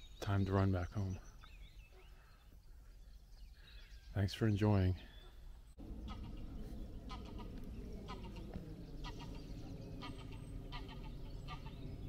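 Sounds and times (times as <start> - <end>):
large birds calling: 0.0 - 12.0
low background rumble: 5.5 - 12.0.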